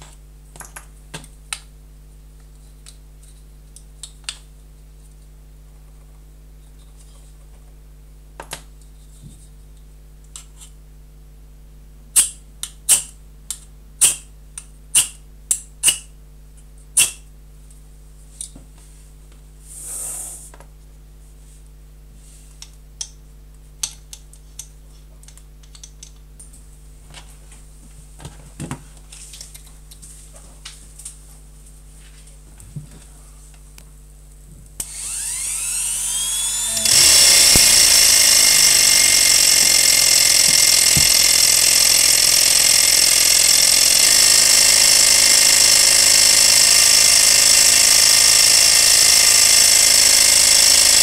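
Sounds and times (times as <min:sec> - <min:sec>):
alcohol burner lighting hiss: 0:19.7 - 0:20.5
sharp tool clicks: 0:34.8 - 0:51.0.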